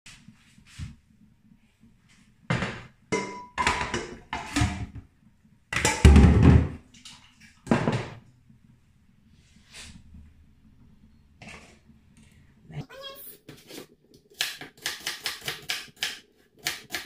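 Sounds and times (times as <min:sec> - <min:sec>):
pot and bowl clattering: 0:02.5 - 0:04.9, 0:05.8 - 0:06.7.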